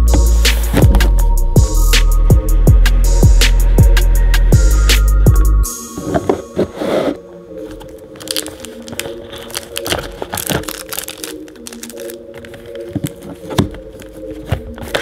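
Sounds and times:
clicks taps and crinkles of packaging: 7.7s - 15.0s.

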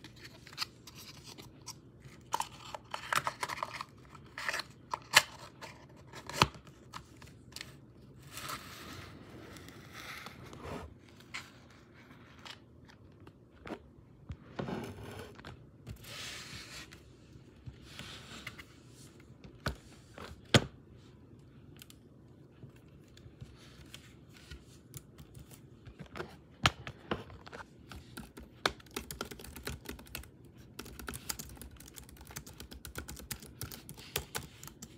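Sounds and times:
fast typing on keyboard: 28.1s - 34.9s.

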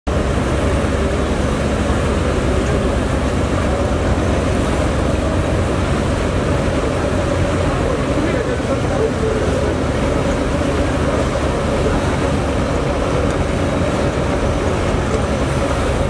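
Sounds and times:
boat diesel engines droning: 0.1s - 16.0s
churning water: 0.1s - 16.0s.

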